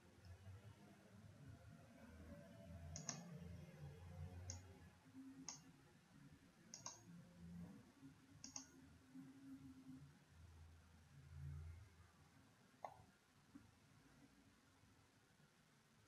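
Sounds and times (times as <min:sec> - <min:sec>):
computer mouse clicks: 0:02.9 - 0:03.4, 0:04.4 - 0:04.7, 0:05.4 - 0:05.7, 0:06.7 - 0:07.1, 0:08.4 - 0:08.8, 0:12.8 - 0:13.1.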